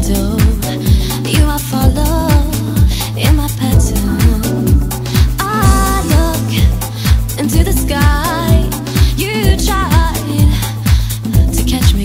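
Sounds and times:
bass line: 0:00.0 - 0:12.0
kick drum: 0:00.0 - 0:12.0
person singing: 0:00.0 - 0:12.0.

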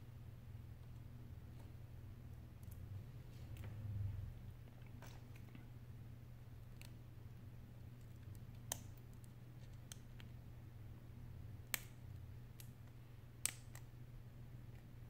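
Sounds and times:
steady low hum: 0:00.0 - 0:15.0
small sharp clicks: 0:11.6 - 0:12.8, 0:13.4 - 0:13.9.

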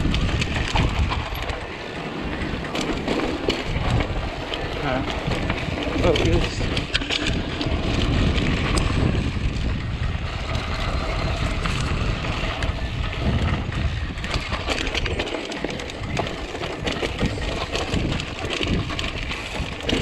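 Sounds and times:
bike rattling clicks: 0:00.0 - 0:20.0
bike tyres crunching on trail: 0:00.0 - 0:20.0
wind rumble on microphone: 0:00.0 - 0:20.0.

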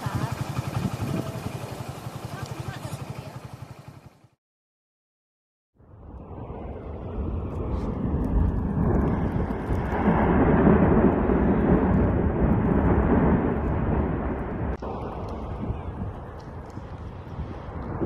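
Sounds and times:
volcano eruption roar: 0:05.8 - 0:18.0.

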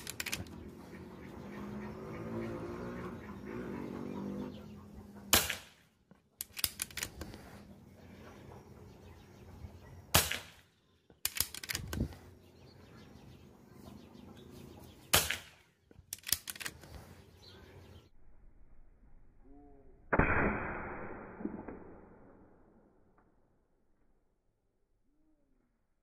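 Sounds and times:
metallic clicks of rifle cocking: 0:00.0 - 0:00.6, 0:06.4 - 0:07.4, 0:11.2 - 0:12.2, 0:15.3 - 0:17.0
air rifle shot crack: 0:05.3 - 0:05.9, 0:10.1 - 0:10.6, 0:15.1 - 0:15.6, 0:20.1 - 0:22.3.

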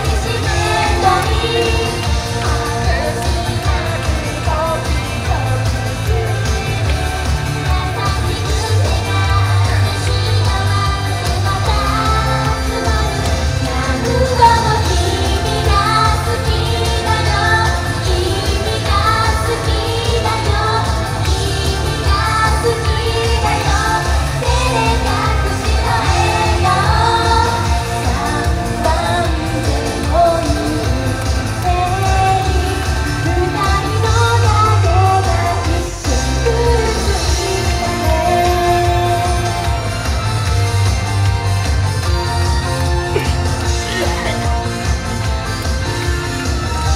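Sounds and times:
women singing pop song: 0:00.0 - 0:41.0, 0:41.9 - 0:46.9
backing track with bass beat: 0:00.0 - 0:46.9.

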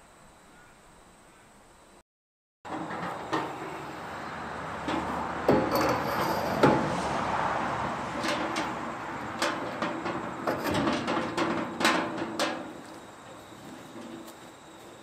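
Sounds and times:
metal clunks and knocks: 0:02.7 - 0:04.0, 0:04.6 - 0:14.4.

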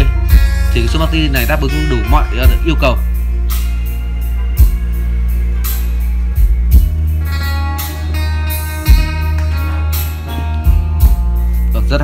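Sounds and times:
guitar music with heavy bass: 0:00.0 - 0:12.0.

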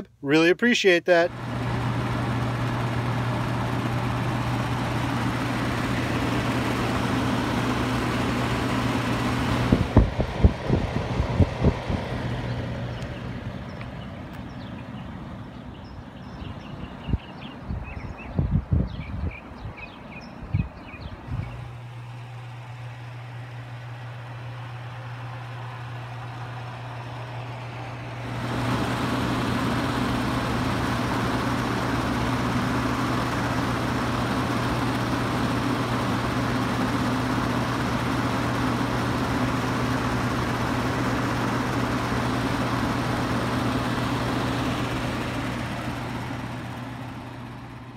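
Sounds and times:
attic fan motor hum: 0:00.0 - 0:47.9
wind buffets: 0:09.5 - 0:13.8, 0:15.9 - 0:21.7.

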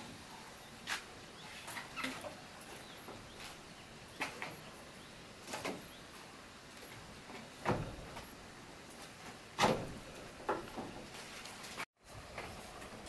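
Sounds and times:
knocks and thuds: 0:07.6 - 0:08.3, 0:09.6 - 0:11.1.

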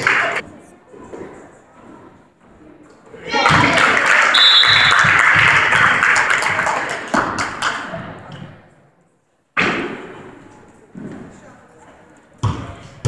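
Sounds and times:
spectators cheering and clapping: 0:00.0 - 0:00.4, 0:03.4 - 0:07.8.

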